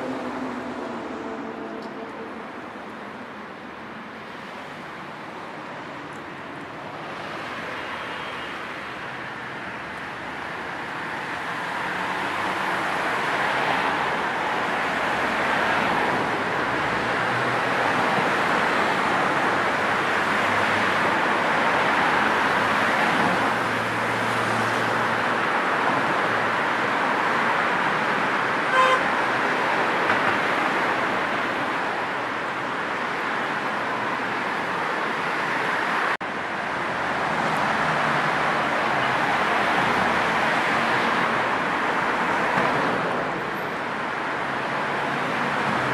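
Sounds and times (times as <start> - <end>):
cars passing along street: 0.0 - 45.9
car horn toot: 28.7 - 29.1.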